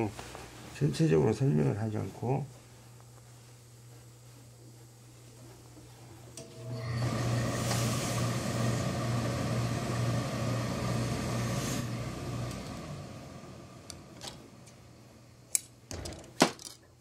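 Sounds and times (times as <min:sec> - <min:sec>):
low electric buzz: 0:00.0 - 0:15.9
steam iron hissing: 0:06.4 - 0:14.2.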